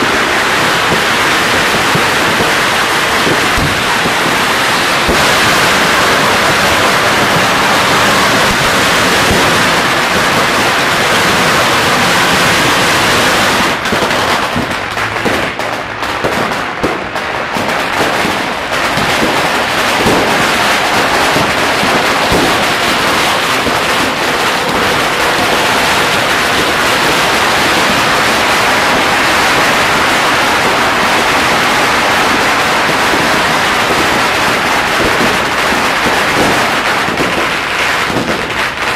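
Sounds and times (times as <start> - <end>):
firecrackers crackling and banging: 0.0 - 38.9.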